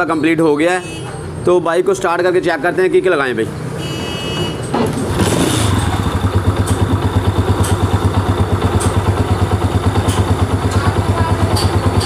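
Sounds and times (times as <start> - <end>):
motorcycle engine kick-started idling: 5.0 - 12.0.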